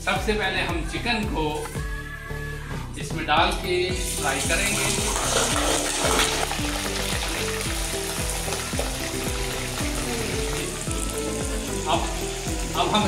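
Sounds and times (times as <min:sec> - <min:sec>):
background music with beat: 0:00.0 - 0:13.0
chicken frying in hot oil: 0:04.0 - 0:13.0.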